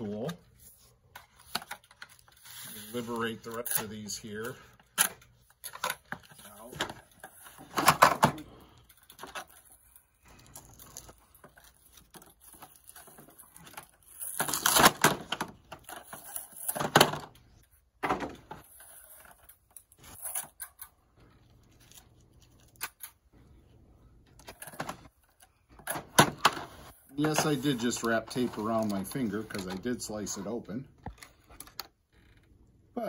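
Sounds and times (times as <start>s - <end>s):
plastic boxes clicking and knocking: 5.0s - 8.5s
cardboard rustling and tearing: 10.5s - 16.9s.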